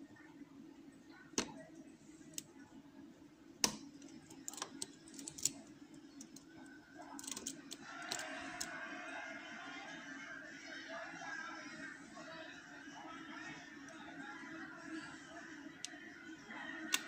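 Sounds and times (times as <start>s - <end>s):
lock pick clicking in lock: 7.2s - 8.2s.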